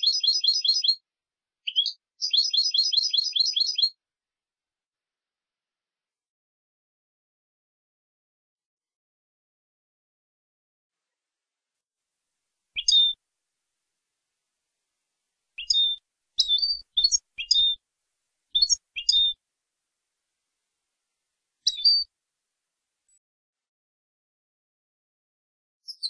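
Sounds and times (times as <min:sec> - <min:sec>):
goldfinch chirping: 0:00.0 - 0:01.0, 0:01.7 - 0:03.9, 0:12.8 - 0:13.2, 0:15.6 - 0:17.8, 0:18.6 - 0:19.4, 0:21.6 - 0:22.1.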